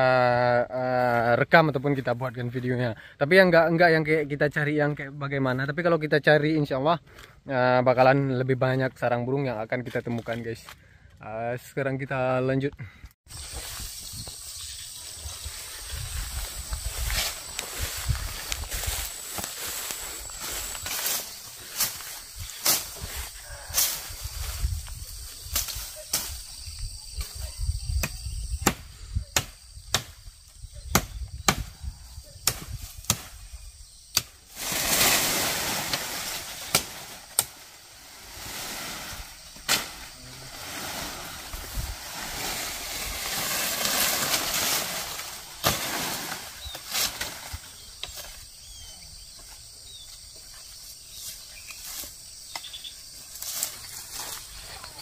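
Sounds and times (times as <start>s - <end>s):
leaves and branches rustling: 13.3s - 55.0s
footsteps: 15.0s - 25.0s
twigs snapping: 35.8s - 37.8s.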